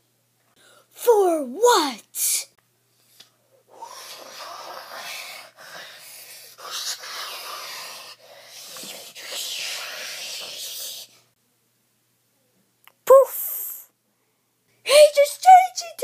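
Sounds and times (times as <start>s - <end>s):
person hissing with mouth: 3.7s - 11.2s.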